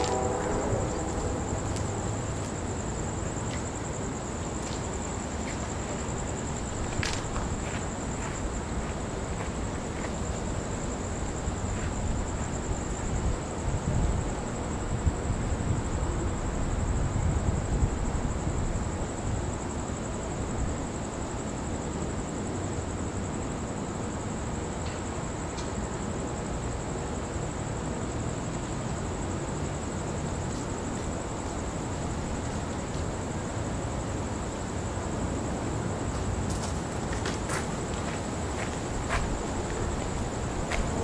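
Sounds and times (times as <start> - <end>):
wind buffeting microphone: 38.2 - 41.0.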